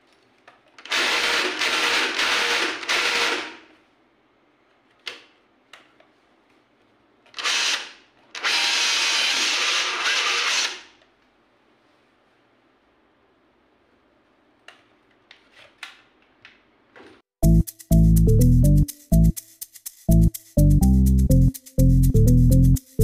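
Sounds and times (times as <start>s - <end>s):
rotary hammer running: 0.9s - 3.6s, 8.4s - 10.8s.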